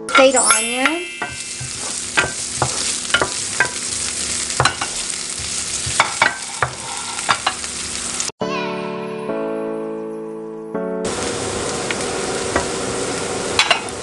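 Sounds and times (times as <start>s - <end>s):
onion sizzling in frying pan: 0.1s - 8.3s, 11.1s - 14.0s
spatula scraping a pan: 1.2s - 8.1s.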